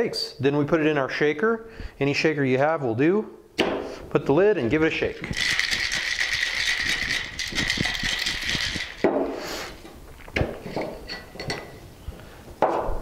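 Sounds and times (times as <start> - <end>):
ice rattling in cocktail shaker: 5.0 - 9.1
shaker knocking and clinking: 5.2 - 9.9.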